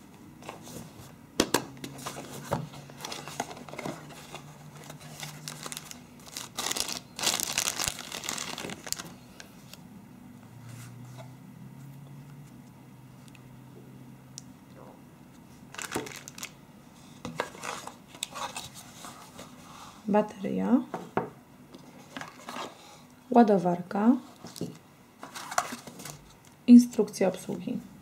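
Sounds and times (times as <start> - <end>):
plastic wrapping crinkling: 2.9 - 9.5, 15.7 - 16.6.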